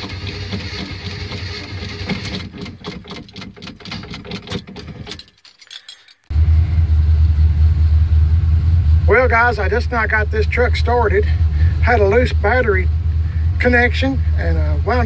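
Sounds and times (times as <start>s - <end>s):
engine idling: 0.0s - 5.1s, 6.3s - 15.0s
light clicking and rattling: 0.1s - 6.3s.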